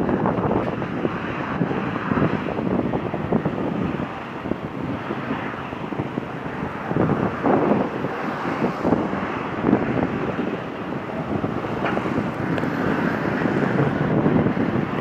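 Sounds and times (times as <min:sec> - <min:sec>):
jet engines: 0:00.0 - 0:15.0
wind buffeting microphone: 0:00.0 - 0:15.0.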